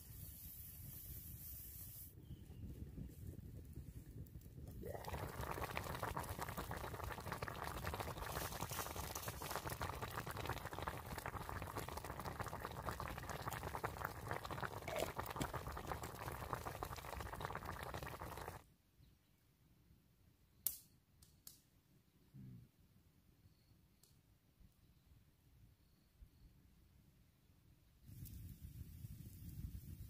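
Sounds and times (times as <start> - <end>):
food bubbling and crackling over campfire: 2.9 - 18.6.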